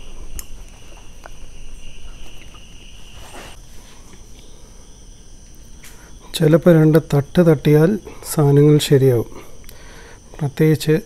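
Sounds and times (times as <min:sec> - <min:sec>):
crickets trilling: 0:00.0 - 0:11.0
short scrape: 0:03.0 - 0:03.9.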